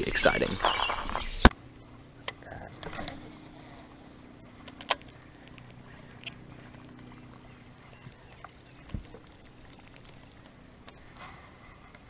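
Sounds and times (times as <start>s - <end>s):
faint steady hum: 0.0s - 12.0s
fishing reel clicking: 7.9s - 10.5s.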